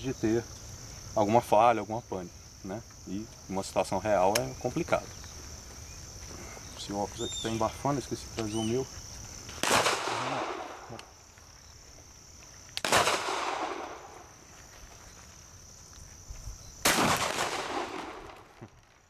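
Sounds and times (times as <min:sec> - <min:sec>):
shotgun shots echoing: 0:09.6 - 0:10.9, 0:12.8 - 0:14.2, 0:16.8 - 0:18.6.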